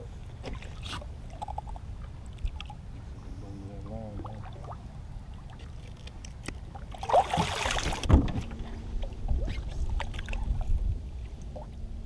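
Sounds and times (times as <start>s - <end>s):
fish splashing at water surface: 7.0s - 8.2s.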